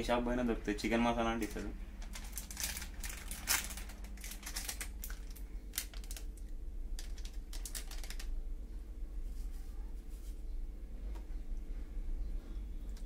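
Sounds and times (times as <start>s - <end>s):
plastic sachet tearing: 1.4s - 8.4s.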